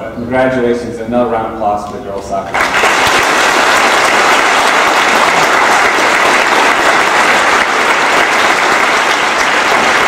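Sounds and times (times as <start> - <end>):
audience applauding: 2.5 - 10.0.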